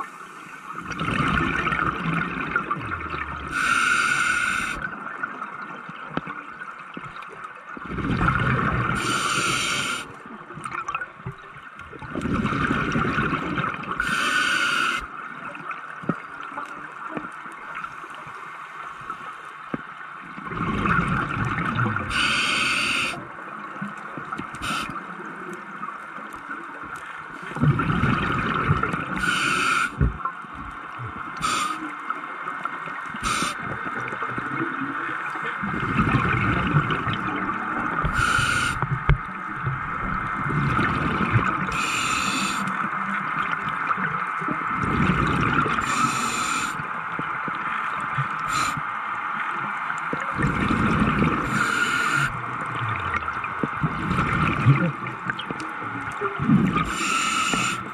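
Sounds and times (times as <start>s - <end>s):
exhaled bubbles rumbling: 0.8s - 3.6s, 7.8s - 9.5s, 10.6s - 14.0s, 20.3s - 22.2s, 27.3s - 29.3s, 32.7s - 48.7s, 49.3s - 57.9s
regulator hissing inhalations: 3.5s - 4.8s, 9.0s - 10.1s, 14.0s - 15.1s, 22.1s - 23.2s, 24.6s - 24.9s, 29.2s - 30.0s, 31.4s - 31.9s, 33.2s - 33.6s, 38.1s - 38.8s, 41.7s - 42.8s, 45.8s - 46.8s, 48.4s - 48.8s, 51.4s - 52.3s, 56.8s - 57.9s.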